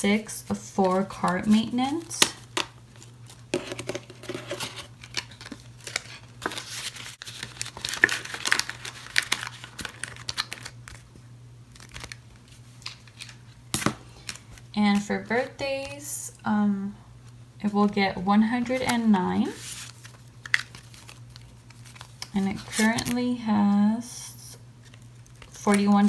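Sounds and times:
banknotes rustling and crinkling: 0.0 - 16.0, 17.8 - 23.8, 24.8 - 26.0.

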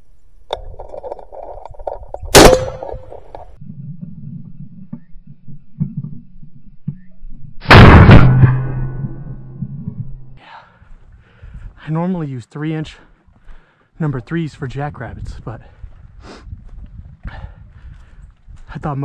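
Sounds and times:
shotgun shots: 2.3 - 3.3, 7.6 - 9.1.

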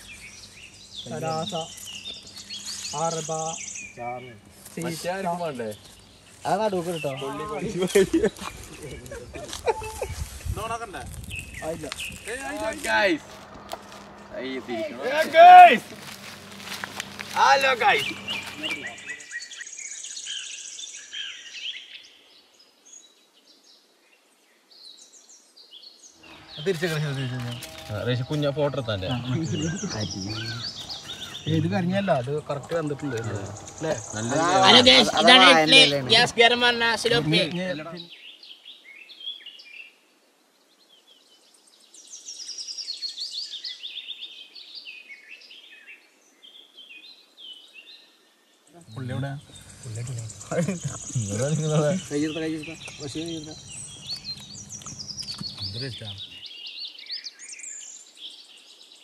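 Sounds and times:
rapid high bird trill: 0.0 - 7.7, 11.3 - 19.6, 26.2 - 37.8, 49.0 - 56.5
birds chirping: 0.0 - 22.0, 25.9 - 39.7, 41.9 - 59.0.

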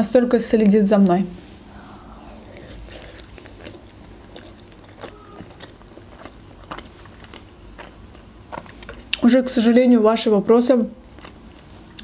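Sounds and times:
person chewing food: 1.0 - 9.2, 11.0 - 12.0.

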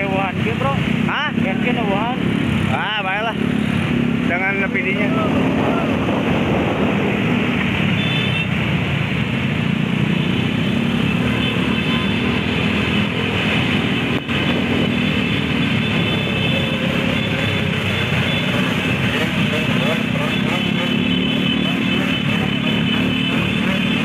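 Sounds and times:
motorcycle engines running: 0.0 - 24.0
road noise: 0.0 - 24.0.

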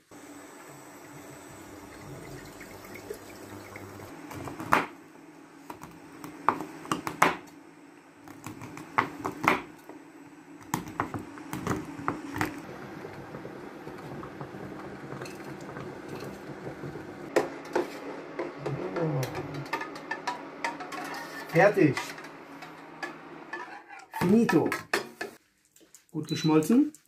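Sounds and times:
water poured into a steel pot: 1.6 - 4.1.

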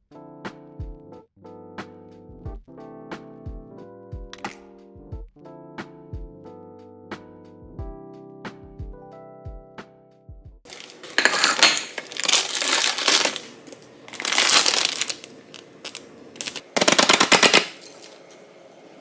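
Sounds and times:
plastic packaging crinkling: 10.7 - 18.3.

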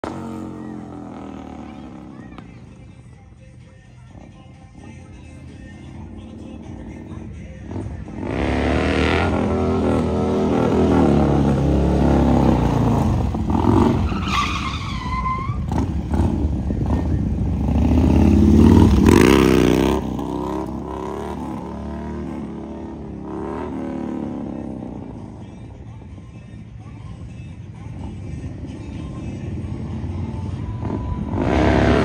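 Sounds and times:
motorcycle engine revving: 0.0 - 2.8, 4.2 - 14.3, 15.5 - 25.4, 27.8 - 32.0
tyre squealing on asphalt: 13.5 - 16.4.

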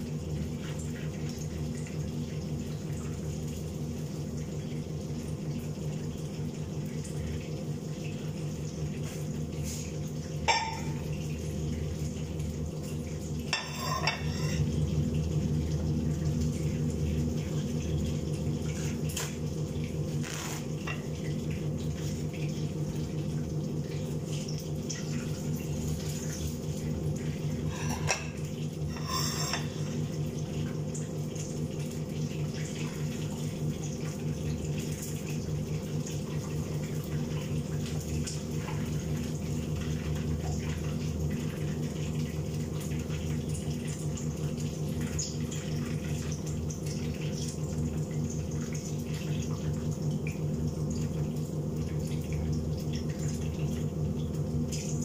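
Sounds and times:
chicken frying in oil: 0.0 - 55.0.

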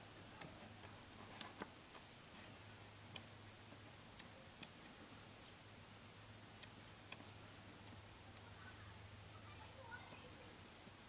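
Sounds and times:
faint sharp clicks: 3.1 - 3.3.

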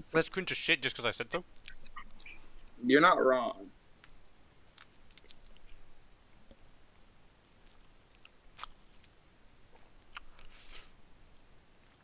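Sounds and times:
person chewing: 4.8 - 5.8, 7.6 - 10.8.

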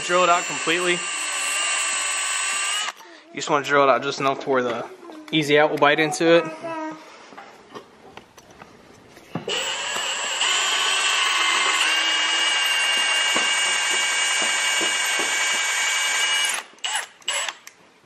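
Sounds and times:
cordless drill whining: 0.0 - 3.0, 9.4 - 17.7.

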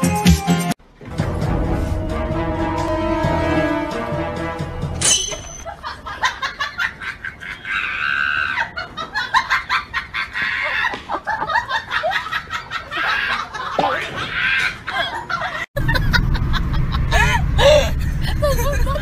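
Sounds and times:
people laughing: 5.6 - 19.0.

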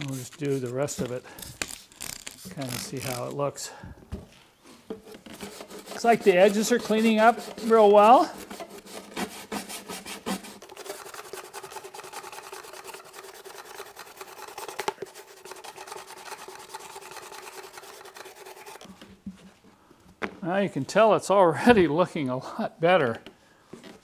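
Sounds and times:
scrub brush scrubbing wet carpet: 5.5 - 18.8.

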